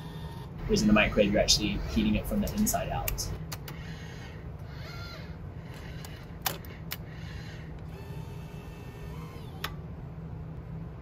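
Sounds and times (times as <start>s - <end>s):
steady low hum: 0.0s - 11.0s
robotic gripper motor whirring: 4.6s - 6.7s, 7.8s - 9.8s.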